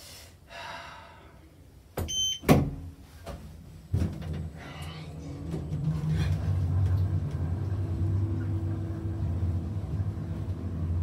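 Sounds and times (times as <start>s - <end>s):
lift car humming and rumbling: 4.1s - 11.0s.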